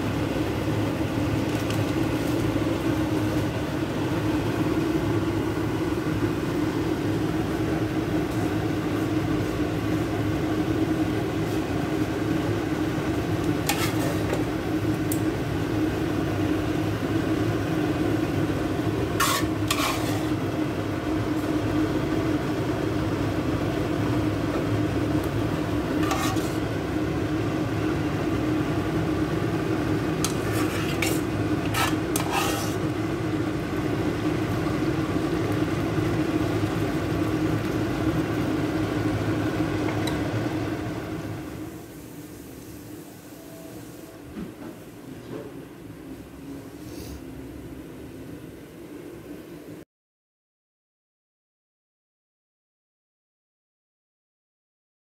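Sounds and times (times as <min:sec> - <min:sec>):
noodles sizzling on hot plate: 0:00.0 - 0:44.0.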